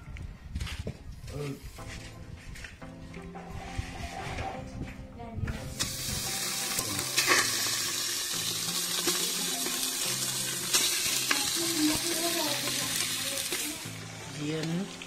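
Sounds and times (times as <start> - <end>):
meat sizzling in a pot: 5.7 - 15.0.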